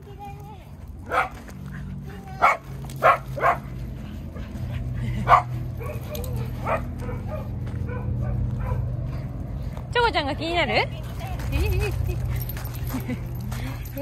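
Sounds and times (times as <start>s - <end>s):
small dog barking: 1.1s - 1.4s, 2.4s - 3.7s, 5.3s - 8.9s.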